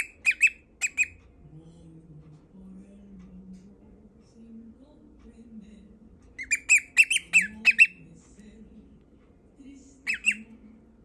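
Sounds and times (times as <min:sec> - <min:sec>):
cockatiel singing shrill notes: 0:00.0 - 0:01.2, 0:06.4 - 0:08.0, 0:10.1 - 0:10.5.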